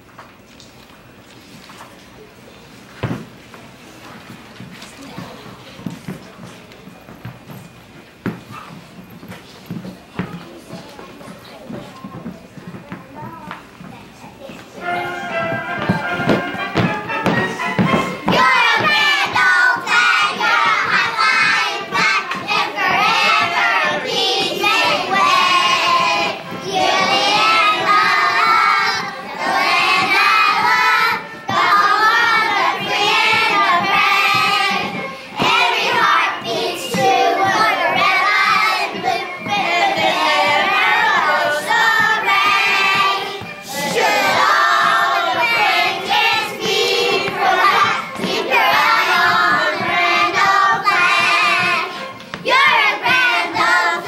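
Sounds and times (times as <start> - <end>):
children singing in unison: 17.5 - 54.0.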